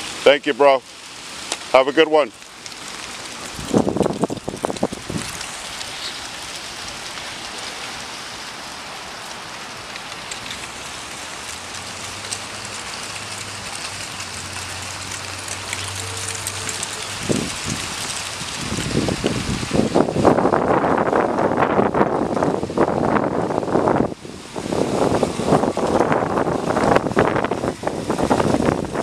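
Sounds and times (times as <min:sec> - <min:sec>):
wind noise on microphone: 0:03.4 - 0:07.0, 0:16.4 - 0:29.0.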